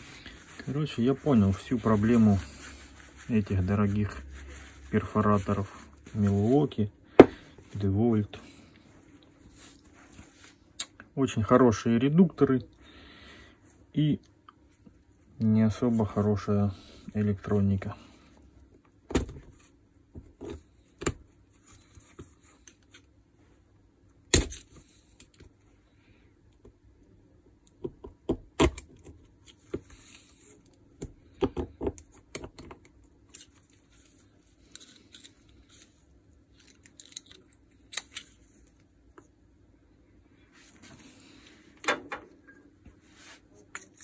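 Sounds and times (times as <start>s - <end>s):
soft handling rustling: 0.0s - 10.8s, 33.2s - 39.4s, 40.3s - 41.8s
small tool parts clicking: 36.6s - 38.2s.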